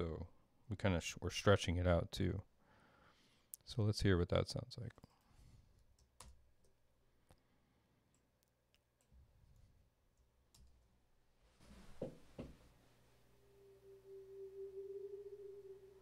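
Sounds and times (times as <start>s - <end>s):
steady pure tone: 13.0s - 16.0s
low swooping strokes: 13.4s - 16.0s.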